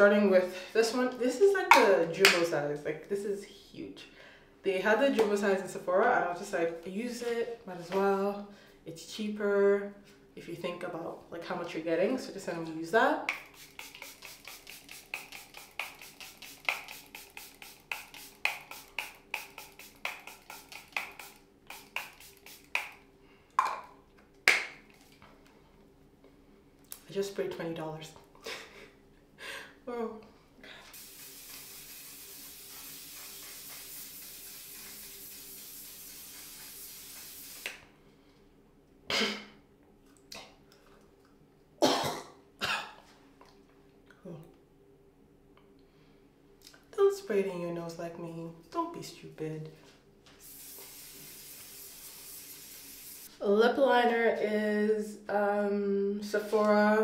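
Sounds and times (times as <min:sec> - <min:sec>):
spray bottle hissing: 0:13.3 - 0:23.0, 0:30.9 - 0:37.8, 0:50.4 - 0:53.3.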